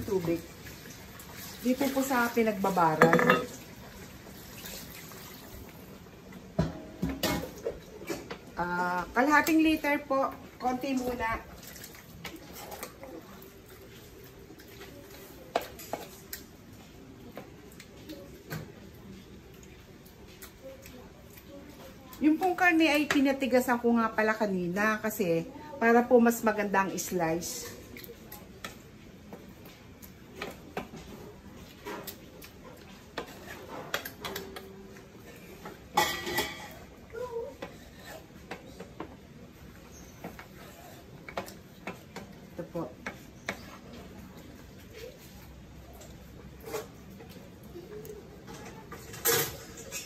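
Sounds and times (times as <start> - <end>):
meat stirred in metal wok: 26.0 - 34.4.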